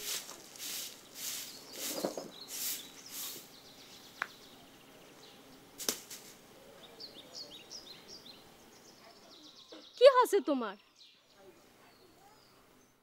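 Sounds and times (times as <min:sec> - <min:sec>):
broom sweeping earth: 0:00.0 - 0:03.6, 0:05.8 - 0:06.4.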